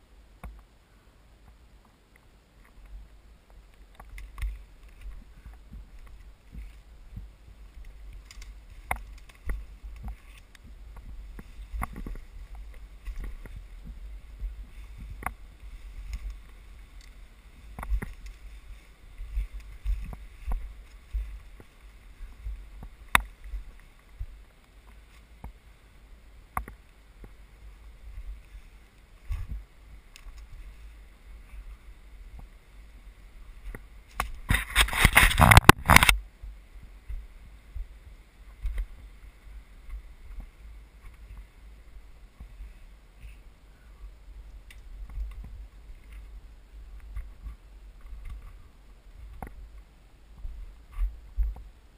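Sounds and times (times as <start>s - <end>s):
footsteps on rocky ground: 2.6s - 25.6s, 26.6s - 32.6s, 44.4s - 51.8s
camera handling noise: 34.2s - 36.2s
loud rustling scrape: 34.5s - 36.1s.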